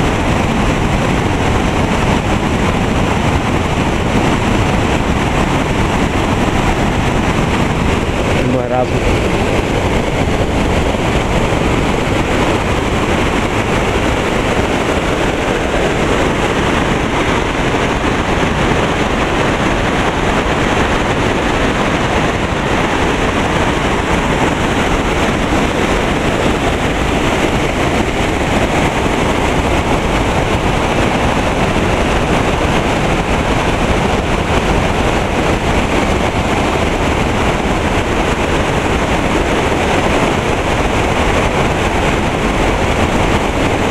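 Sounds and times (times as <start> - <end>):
creek rushing over boulders: 0.0 - 43.9.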